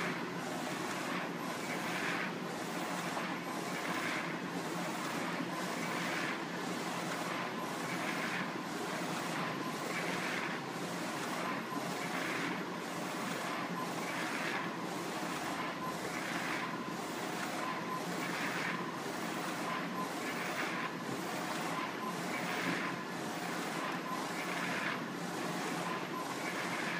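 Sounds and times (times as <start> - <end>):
printer carriage whirring: 0.0 - 26.9.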